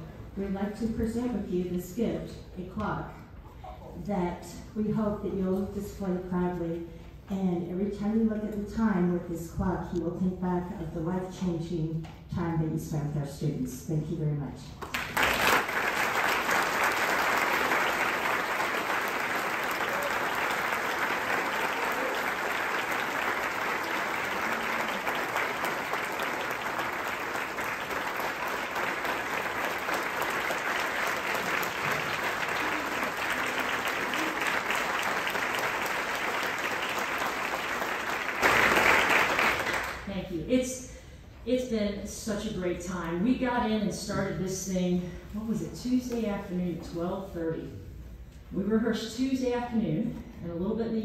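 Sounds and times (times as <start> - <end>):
audience applauding: 14.8 - 40.0.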